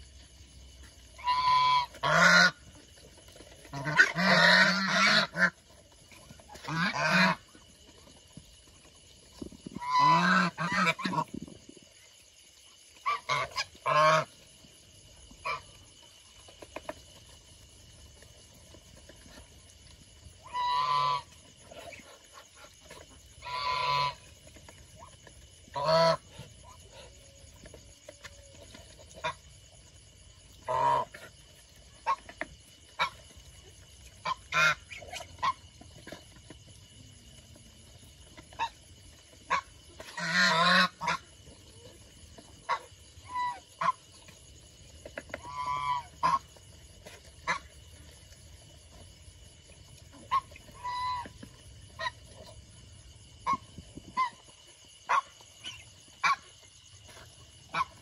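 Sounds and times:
bills pecking at feed: 0.0s - 58.0s
geese honking: 1.2s - 2.6s, 3.7s - 5.5s, 23.4s - 24.2s, 39.5s - 41.2s.

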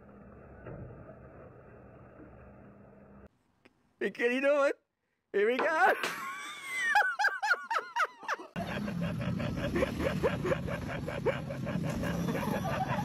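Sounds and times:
person laughing: 5.8s - 13.0s.

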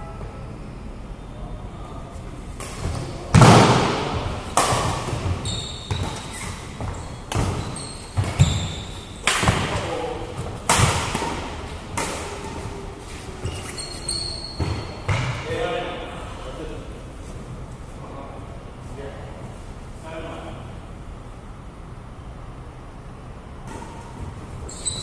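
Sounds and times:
racket hitting shuttlecock: 2.6s - 13.8s
shoes squeaking on court floor: 2.6s - 15.4s, 23.7s - 25.0s.

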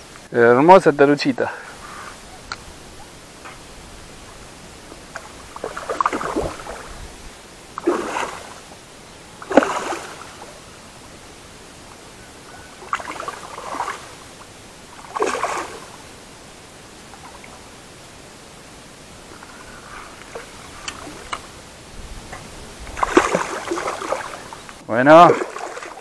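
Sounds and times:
fish splashing at water surface: 5.1s - 6.9s, 7.8s - 8.7s, 9.4s - 10.6s, 12.8s - 14.3s, 15.0s - 16.1s, 22.8s - 24.6s, 25.2s - 26.0s.

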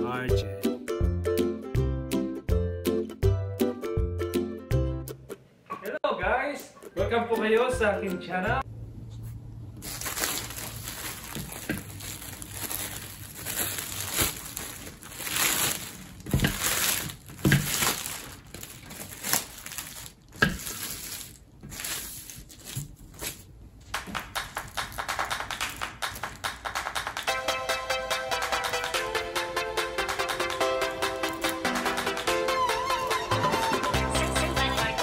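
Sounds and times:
plastic bag crinkling: 9.8s - 23.6s.

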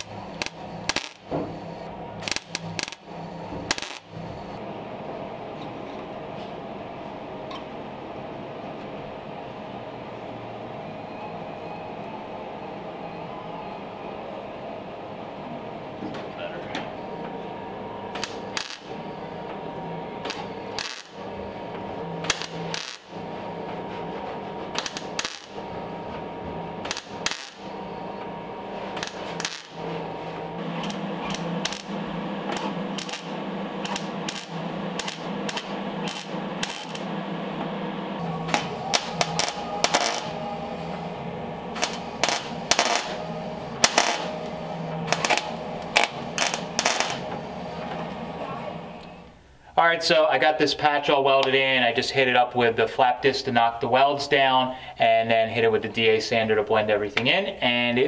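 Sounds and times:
welder crackling: 0.0s - 4.6s, 17.8s - 49.4s.

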